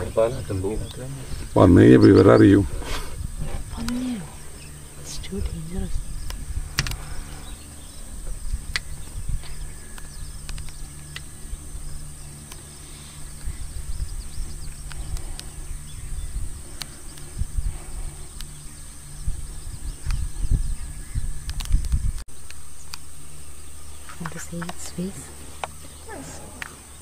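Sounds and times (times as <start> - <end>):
low rumble: 0.0 - 22.3
high-pitched insect drone: 0.0 - 27.0
scattered clicks: 8.7 - 11.3, 16.7 - 17.3, 24.2 - 25.0.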